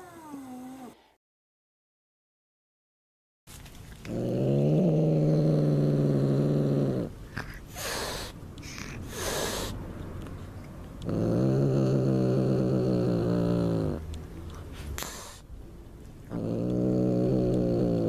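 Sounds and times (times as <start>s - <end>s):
cat growling: 0.0s - 1.0s, 4.0s - 9.7s, 11.0s - 14.1s, 16.3s - 18.0s.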